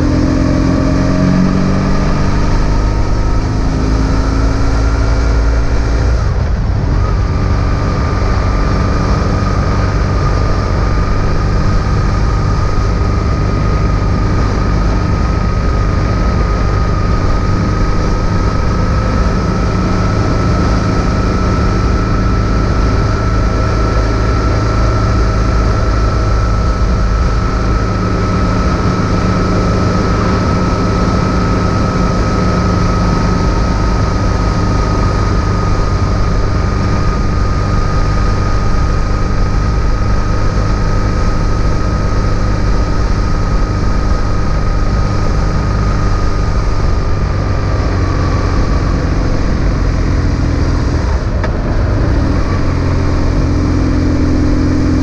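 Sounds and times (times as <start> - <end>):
heavy wind noise: 0.0 - 55.0
motorcycle engine cruising: 0.0 - 55.0
road noise: 0.0 - 55.0.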